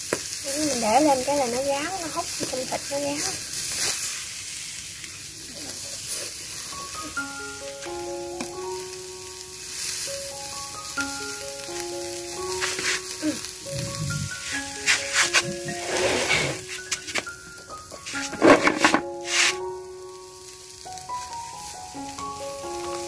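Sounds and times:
fish sizzling on a grill: 0.0 - 23.0
gentle melody of held notes: 6.6 - 23.0.

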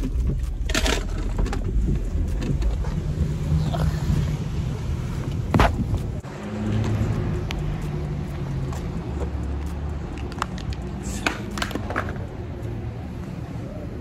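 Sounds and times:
wind rumbling on microphone: 0.0 - 6.2.

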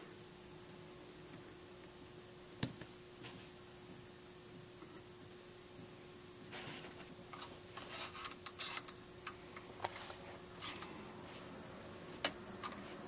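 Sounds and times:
small metal clicks and scrapes: 7.3 - 11.0.

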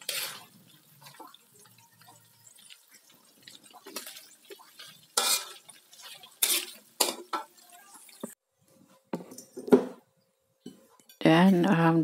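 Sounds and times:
metal spatula scraping wok: 0.0 - 1.0, 4.7 - 7.6.

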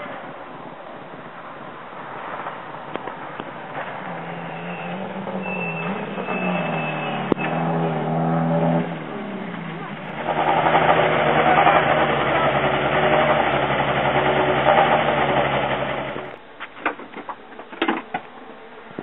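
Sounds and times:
car engine idling loudly: 9.0 - 16.4.

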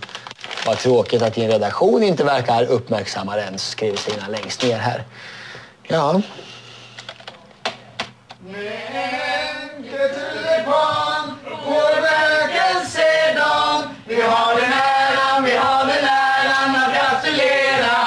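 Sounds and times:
group singing a celebration song: 8.4 - 18.0.

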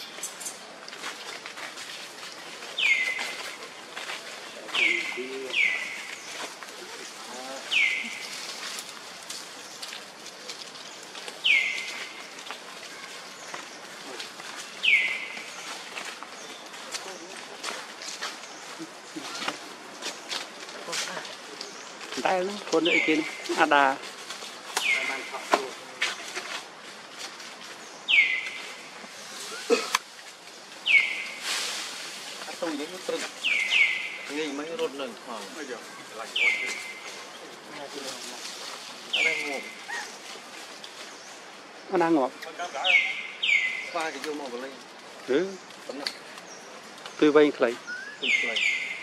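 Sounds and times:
steady forest hiss: 0.0 - 49.0
bird calling: 2.7 - 3.8, 4.5 - 8.8, 10.8 - 17.6, 21.1 - 24.0, 24.7 - 26.4, 27.8 - 30.0, 30.8 - 31.4, 32.6 - 38.3, 39.1 - 49.0
high bird chirps: 2.8 - 3.4, 4.7 - 6.4, 11.4 - 12.3, 14.8 - 15.7, 28.0 - 28.8, 30.8 - 31.4, 33.4 - 34.7, 35.9 - 37.2, 39.1 - 40.2, 42.6 - 44.1, 47.8 - 49.0.

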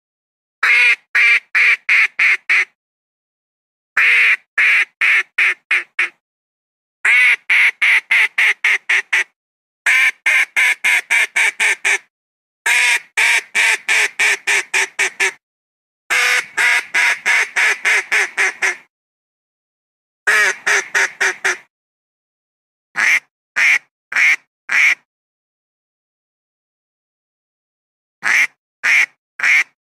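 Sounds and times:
duck quacking: 0.6 - 2.8, 4.0 - 6.2, 7.1 - 9.3, 9.9 - 12.0, 12.7 - 15.4, 16.1 - 18.9, 20.3 - 21.7, 23.0 - 25.0, 28.2 - 29.8.

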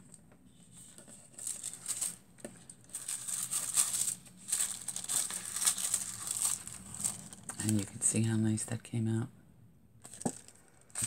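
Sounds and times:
tissue paper and foil crinkling: 0.8 - 8.0, 10.1 - 11.0.

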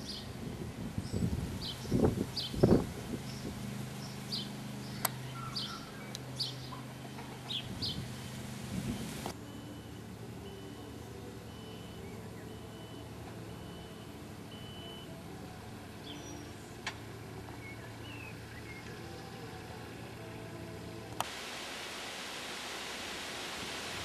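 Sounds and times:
vehicle engine running: 0.0 - 21.2
steady hiss: 0.0 - 24.0
reversing beeper: 8.9 - 15.3.

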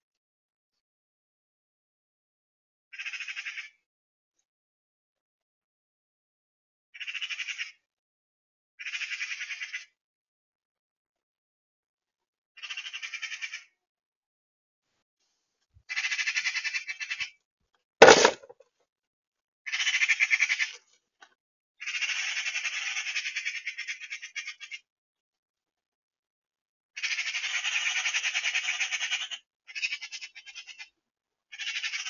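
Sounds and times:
magpie rattling chatter: 7.0 - 7.7, 21.8 - 24.8, 27.0 - 30.9, 31.5 - 32.0.

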